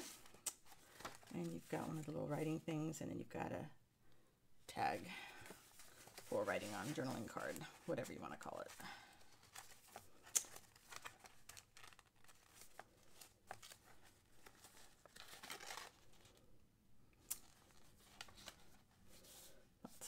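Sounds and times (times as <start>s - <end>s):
paper pages rustling: 0.0s - 2.1s, 5.2s - 16.4s, 17.4s - 20.0s.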